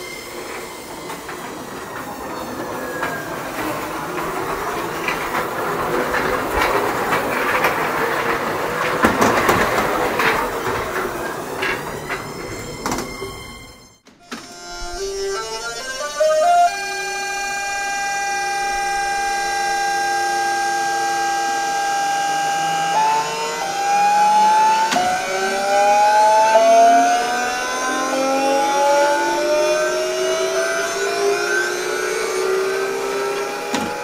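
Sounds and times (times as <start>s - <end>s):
electric motor whine rising in steps: 15.0s - 34.0s.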